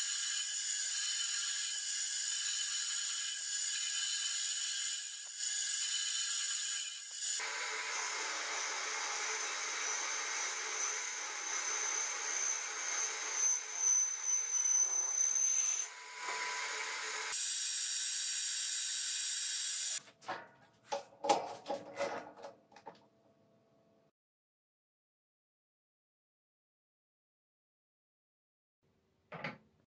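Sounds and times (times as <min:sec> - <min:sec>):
metal lathe cutting with whine: 0:00.3 - 0:20.0.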